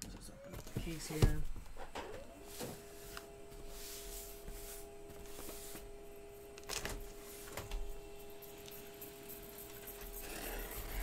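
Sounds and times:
printer humming: 0:00.3 - 0:11.0.

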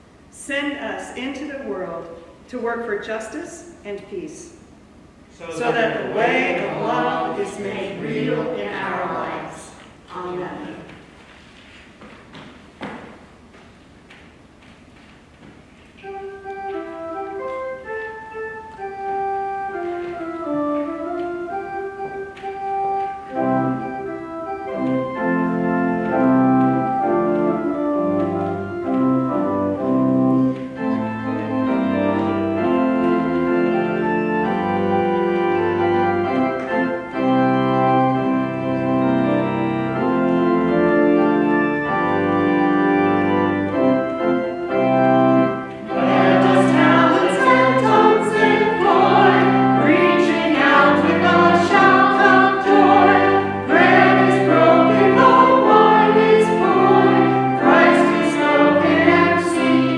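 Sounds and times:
organ playing sustained chords: 0:04.8 - 0:11.0, 0:15.9 - 0:59.9
voices singing a hymn: 0:05.4 - 0:09.8, 0:44.8 - 0:59.9.

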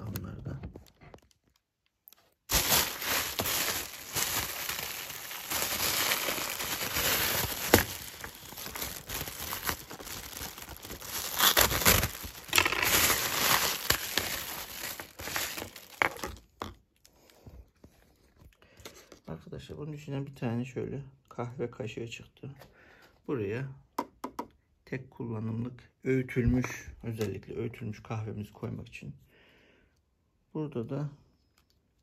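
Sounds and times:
plastic bag crinkling: 0:00.4 - 0:16.7.

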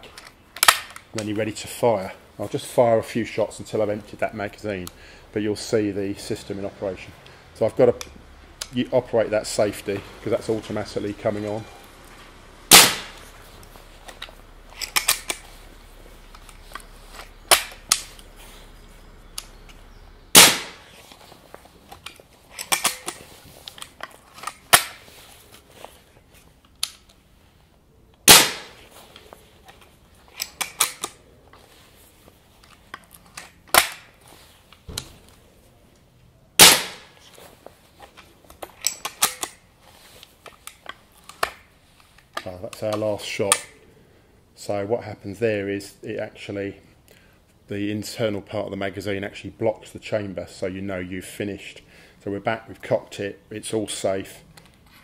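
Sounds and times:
rifle cocking clicks and clunks: 0:00.0 - 0:01.3, 0:14.1 - 0:21.2, 0:21.9 - 0:25.1, 0:26.6 - 0:27.2, 0:28.2 - 0:31.2, 0:32.6 - 0:34.2, 0:38.0 - 0:39.7, 0:40.4 - 0:43.8
air rifle shots: 0:12.7 - 0:13.3, 0:17.2 - 0:18.2, 0:20.3 - 0:21.0, 0:28.2 - 0:28.9, 0:36.6 - 0:37.2.

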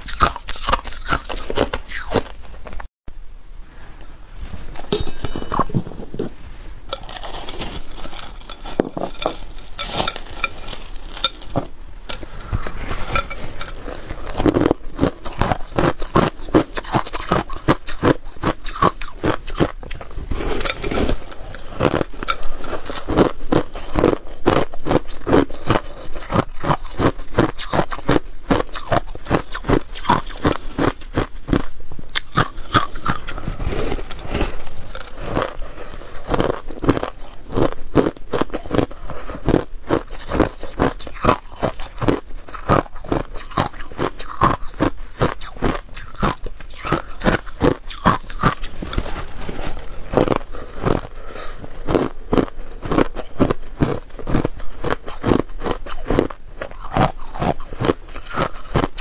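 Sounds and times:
ice crunching being chewed: 0:00.0 - 0:02.8, 0:06.9 - 0:59.0
shaved ice scraping: 0:07.0 - 0:11.6.

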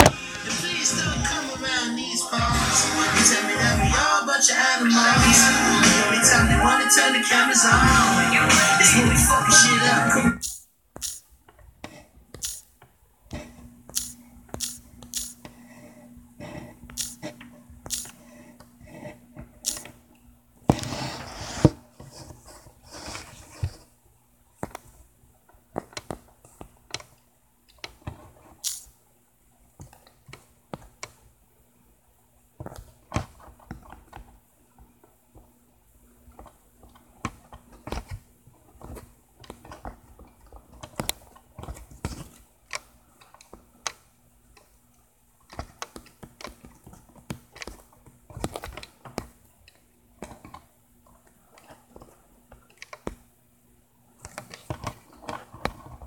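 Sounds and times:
faint steady hum: 0:00.0 - 0:56.0
fingers tapping smartphone: 0:10.4 - 0:19.9.

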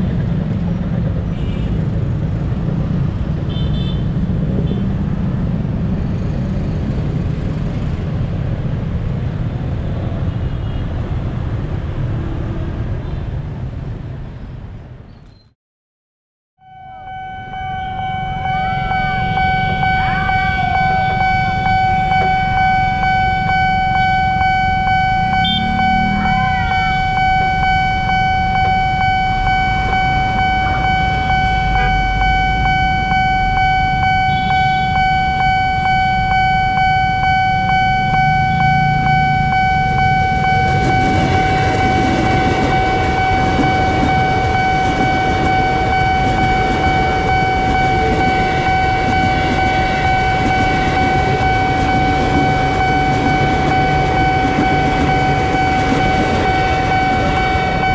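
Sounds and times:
road traffic rumble: 0:00.0 - 0:15.5, 0:16.6 - 0:57.9
electric train passing: 0:16.6 - 0:57.9
level crossing warning siren: 0:16.6 - 0:57.9
horn toots: 0:17.0 - 0:35.9.

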